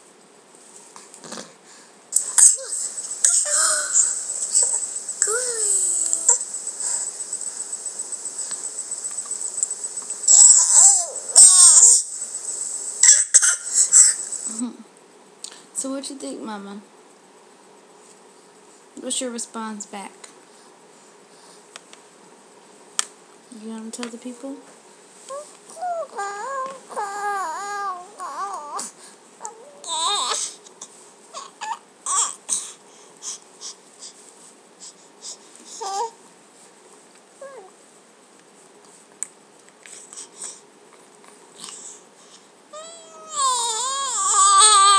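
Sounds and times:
baby crying: 10.3s - 12.0s, 25.3s - 30.6s, 42.8s - 44.9s
baby squealing: 10.3s - 12.0s, 42.8s - 44.9s
infant squealing: 10.3s - 12.0s, 25.8s - 30.6s, 42.8s - 44.9s.

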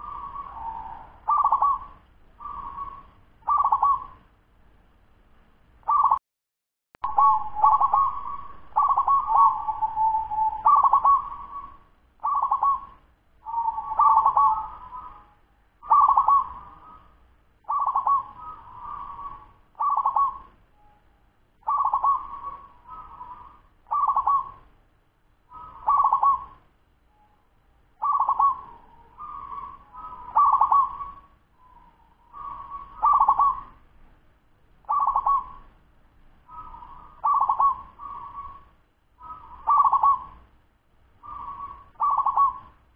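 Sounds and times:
dove cooing: 0.0s - 4.2s, 7.1s - 20.5s, 21.6s - 24.6s, 25.5s - 26.6s, 28.0s - 33.8s, 34.9s - 35.7s, 36.5s - 40.4s, 41.2s - 42.8s.

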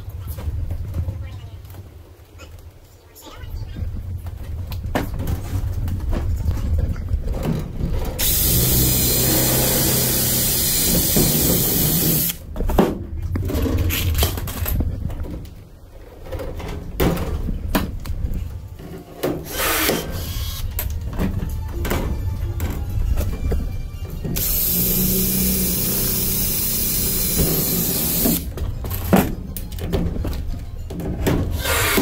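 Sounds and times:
tools and metal clanking: 4.9s - 32.0s
cordless drill drilling into metal: 8.2s - 12.4s, 19.4s - 20.6s, 24.4s - 28.5s, 31.6s - 32.0s.

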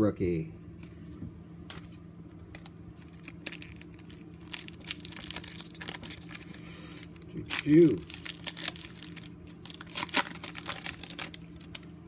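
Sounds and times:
foil wrapper crinkling and tearing: 2.5s - 12.0s.

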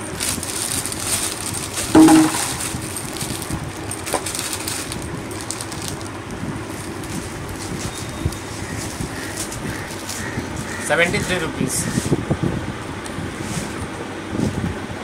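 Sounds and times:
plastic packets crinkling: 0.0s - 10.3s.

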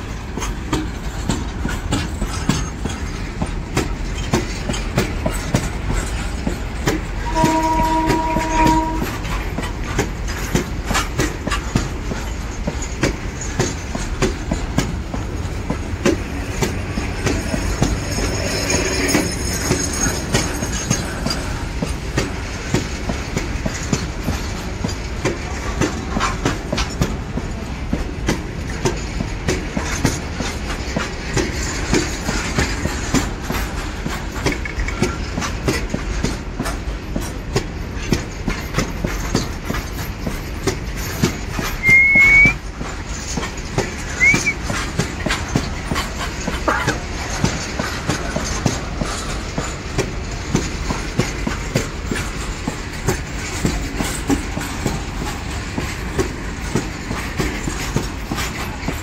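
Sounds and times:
freight train rumbling past: 0.0s - 59.0s
wheels clattering over rail joints: 0.0s - 59.0s
high squeal: 41.8s - 42.6s, 44.2s - 44.6s.

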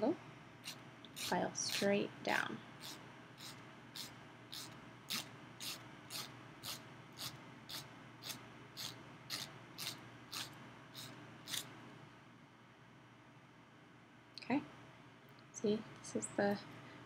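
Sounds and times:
nail file rasping on fingernail: 0.6s - 1.9s, 2.8s - 11.7s.

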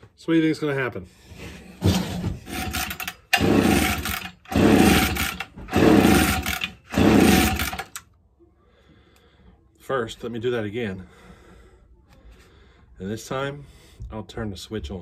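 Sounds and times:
chainsaw recoil starter pulls: 2.5s - 8.0s
engine cranking without firing: 2.5s - 8.0s.

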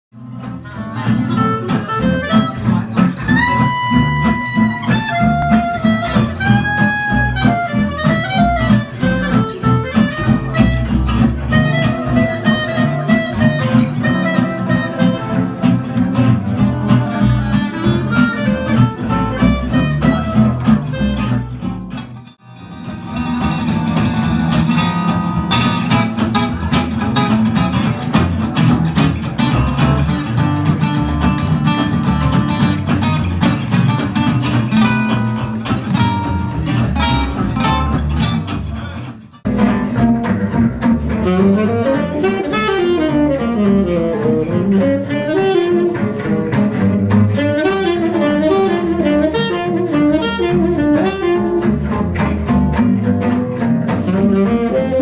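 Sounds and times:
acoustic guitars playing: 0.1s - 55.0s
double bass: 0.1s - 55.0s
strummed rhythm guitar: 0.1s - 55.0s
clarinet melody: 0.7s - 22.6s, 39.5s - 55.0s.

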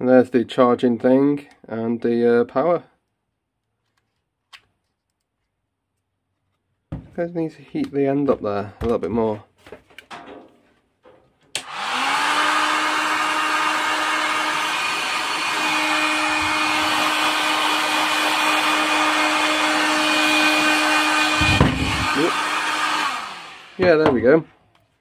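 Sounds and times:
heat gun fan whirring hum: 11.6s - 24.1s.

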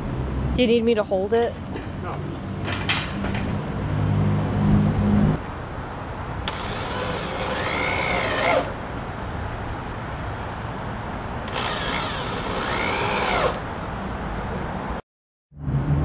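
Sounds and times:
power drill drilling into wood: 6.5s - 8.7s, 11.5s - 13.6s.

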